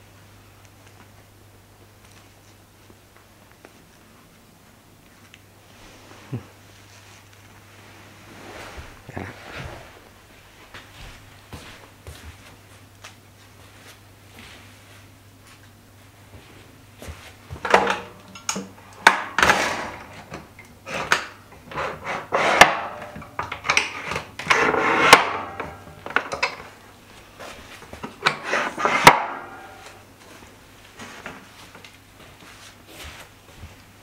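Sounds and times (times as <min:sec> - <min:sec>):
wood rubbing and scraping: 0:21.7 - 0:22.9, 0:27.4 - 0:30.0.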